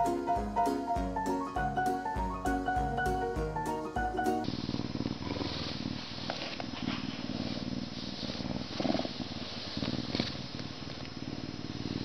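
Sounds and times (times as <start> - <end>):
lynx purring: 4.3 - 12.0.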